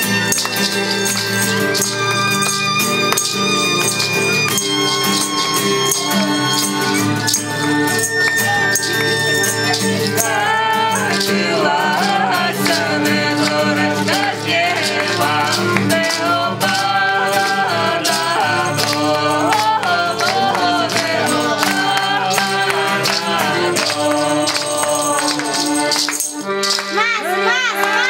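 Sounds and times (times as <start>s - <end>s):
instrumental accompaniment: 0.0s - 28.0s
percussion steady beat: 0.0s - 28.0s
men singing together: 6.0s - 28.0s.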